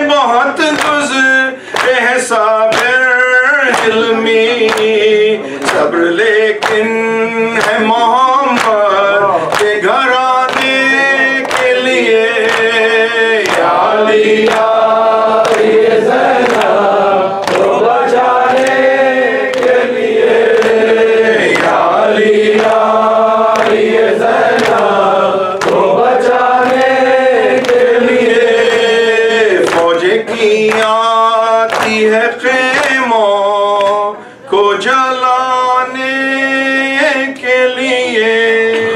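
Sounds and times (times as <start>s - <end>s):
man chanting a lament into a microphone: 0.0s - 15.3s, 27.8s - 38.9s
voices joining chant: 7.5s - 38.9s.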